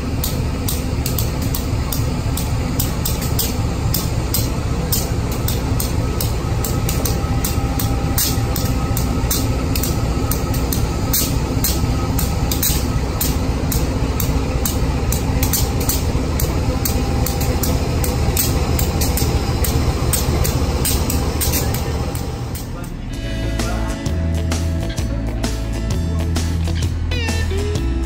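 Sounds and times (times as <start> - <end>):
diesel locomotive engine rumbling: 0.0 - 28.0.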